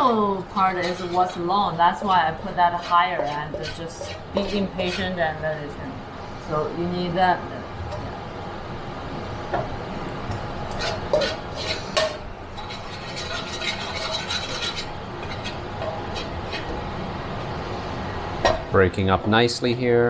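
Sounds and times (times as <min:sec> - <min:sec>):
metal spatula scraping a wok: 0:00.6 - 0:05.4, 0:10.7 - 0:16.8
melting sugar hissing: 0:10.0 - 0:18.4.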